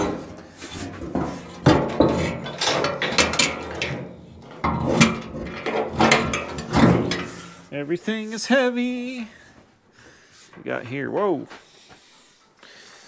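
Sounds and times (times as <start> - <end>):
metal tailgate clanking and scraping: 0.0 - 7.7.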